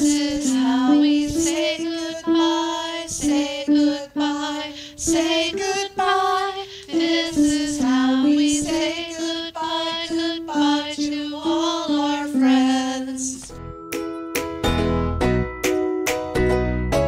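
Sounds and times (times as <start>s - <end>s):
woman singing slowly: 0.0s - 13.5s.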